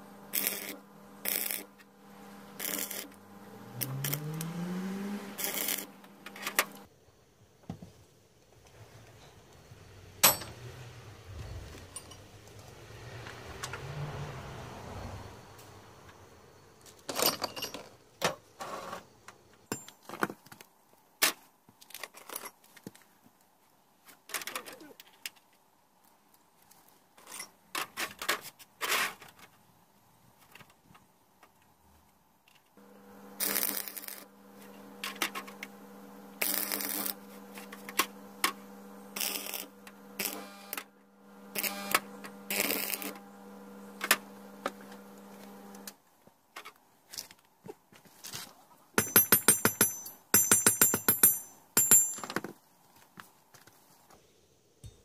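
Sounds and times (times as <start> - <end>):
welding arc crackle: 0.3 - 1.8, 2.4 - 3.2, 3.8 - 4.4, 5.2 - 6.9, 33.1 - 40.8, 41.5 - 43.2
steady hum: 32.8 - 45.9
steel rods clinking: 49.0 - 52.4.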